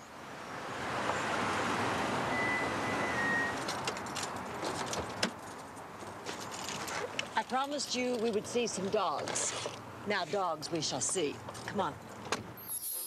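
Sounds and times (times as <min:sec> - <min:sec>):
brief high squeak: 0:12.6 - 0:13.0.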